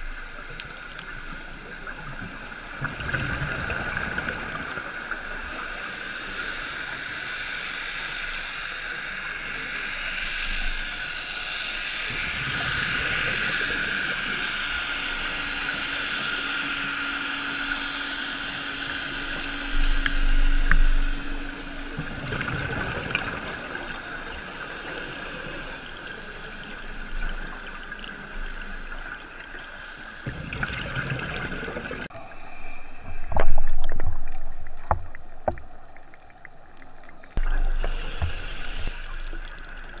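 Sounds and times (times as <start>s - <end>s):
exhaled bubbles: 18.8s - 40.0s
underwater regulator breathing: 23.9s - 27.2s, 37.4s - 40.0s.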